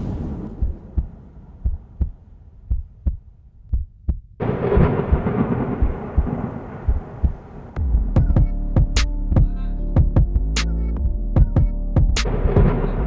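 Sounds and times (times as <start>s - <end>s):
low rumble: 0.0s - 3.8s, 4.4s - 13.0s
thumping heartbeat-like beats: 0.2s - 13.0s
dense music layer: 4.4s - 13.0s.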